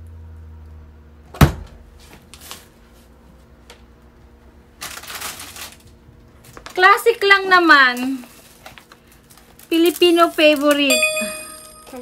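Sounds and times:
plastic packaging crinkling: 4.8 - 6.8, 7.9 - 10.9.

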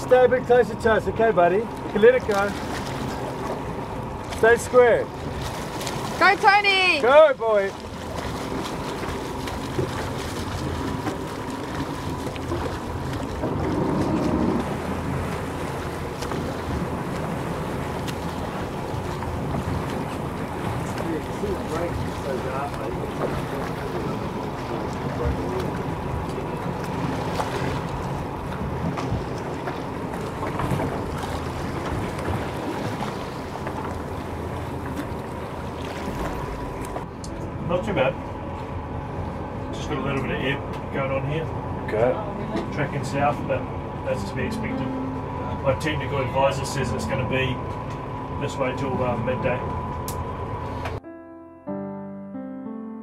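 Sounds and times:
choppy sea water: 0.0 - 51.0
boat engine running: 0.0 - 51.2
wind on microphone: 9.7 - 37.0.

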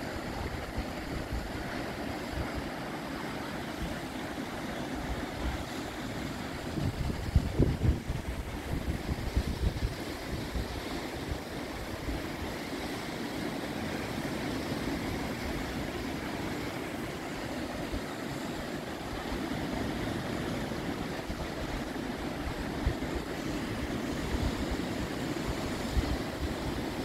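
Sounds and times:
surf washing over rocks: 0.0 - 27.0
wind buffeting microphone: 5.0 - 12.2.

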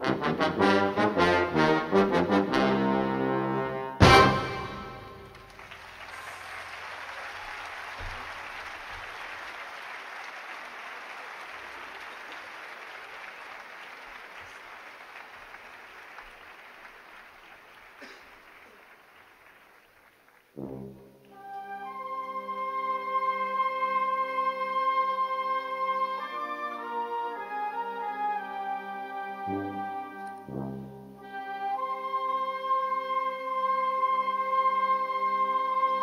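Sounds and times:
concert band brass chord: 0.0 - 5.7, 20.6 - 21.3
audience applauding: 4.6 - 20.9.

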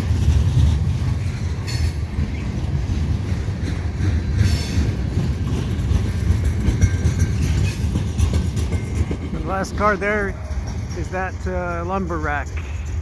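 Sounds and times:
clickety-clack at rail joints: 0.0 - 13.0
train wheels rumbling on rails: 0.0 - 13.0
wheel squeal: 4.4 - 5.0, 5.9 - 11.5.

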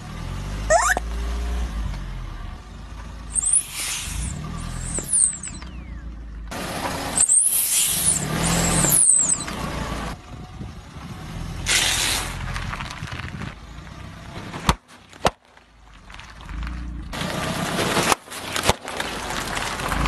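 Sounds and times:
car rumble: 0.0 - 20.0
rubber duck squeaking: 0.7 - 1.1.

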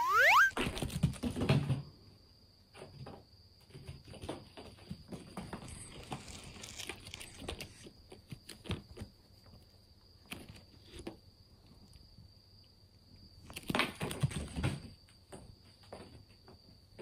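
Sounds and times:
faint high whine: 0.0 - 0.6.

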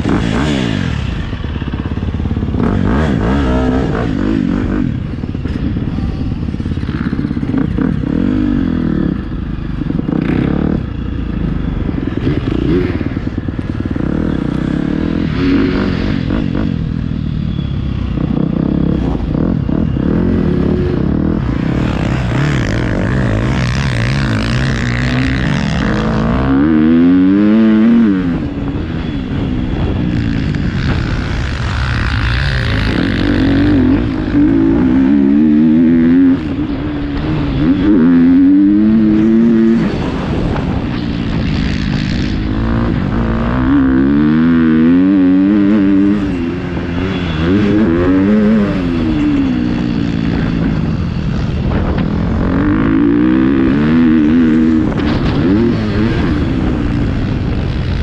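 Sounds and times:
motocross bike engine revving: 0.0 - 58.0.

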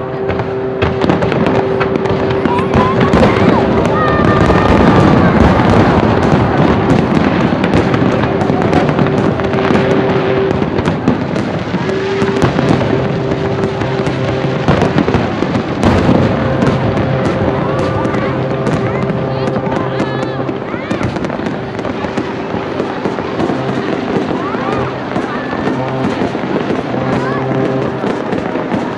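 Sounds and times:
fireworks bursting and crackling: 0.0 - 28.9.

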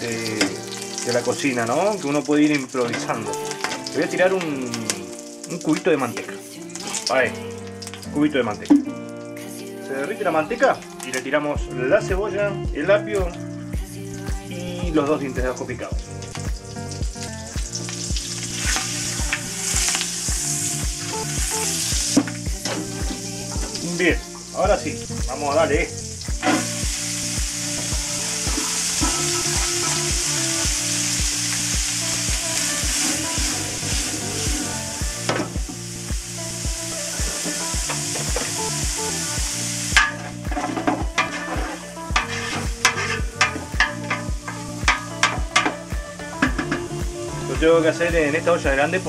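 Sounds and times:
vegetables sizzling in oil: 0.0 - 11.5, 13.4 - 49.0
background music with steady beat: 0.0 - 49.0
vegetables stirred scraping pot: 40.0 - 45.7.

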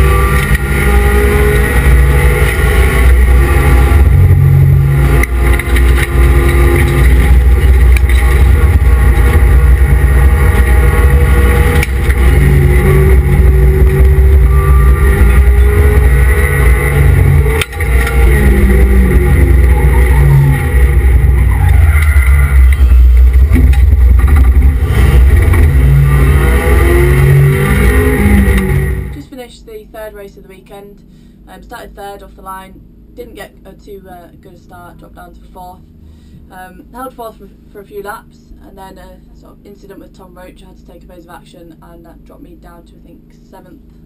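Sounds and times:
race car engine revving: 0.0 - 29.3.

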